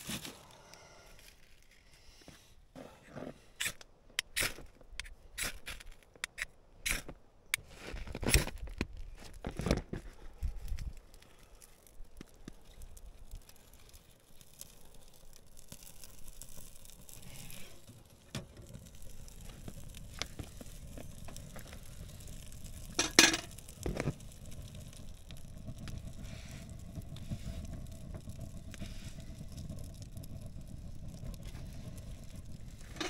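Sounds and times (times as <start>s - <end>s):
steady sizzle: 10.4s - 33.0s.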